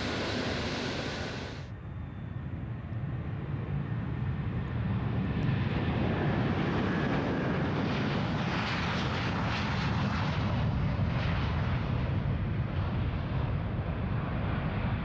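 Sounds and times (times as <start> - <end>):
jet taking off: 0.0 - 1.8.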